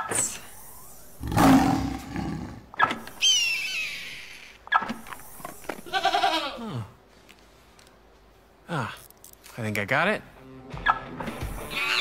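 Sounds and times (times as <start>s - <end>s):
goat bleating: 5.8s - 6.6s.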